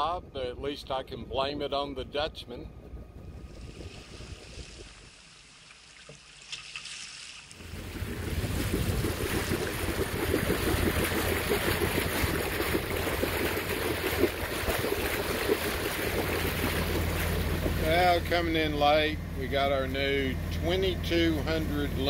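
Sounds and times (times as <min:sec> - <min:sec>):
wind buffeting the microphone: 0:00.0 - 0:05.1, 0:07.6 - 0:18.4
water rushing past a hull: 0:00.0 - 0:22.0.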